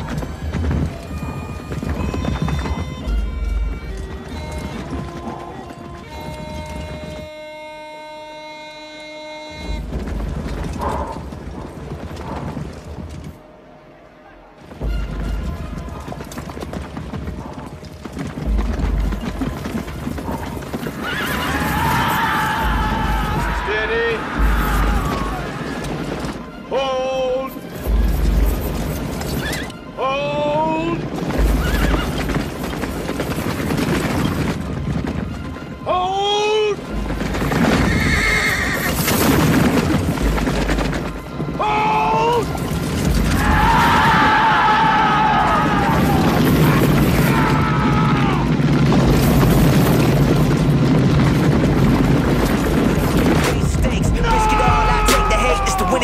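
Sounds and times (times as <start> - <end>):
horses galloping: 0.0 - 56.0
horse whinnying: 19.7 - 26.1, 31.5 - 32.7, 37.2 - 39.4.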